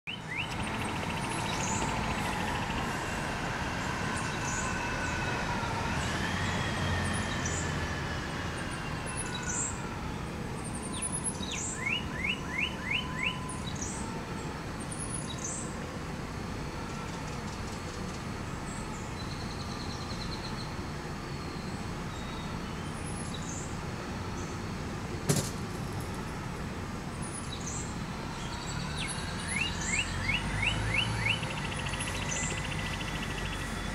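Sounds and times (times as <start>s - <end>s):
birds chirping: 0.1s - 15.8s, 27.1s - 33.9s
siren wailing: 0.1s - 19.5s, 28.0s - 33.9s.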